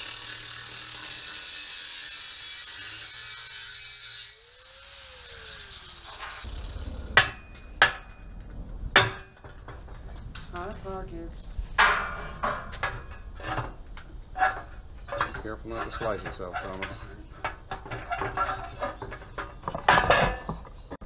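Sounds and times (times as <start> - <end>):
angle grinder cutting steel: 0.0 - 7.6
grinder whine winding down: 4.4 - 7.2.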